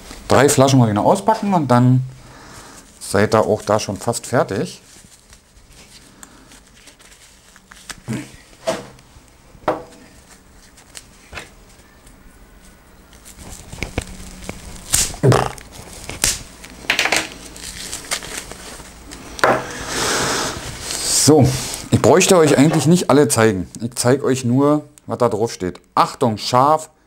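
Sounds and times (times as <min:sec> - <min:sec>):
packaging rustling and crinkling: 0:02.8 - 0:09.1, 0:10.0 - 0:19.9, 0:20.5 - 0:23.0.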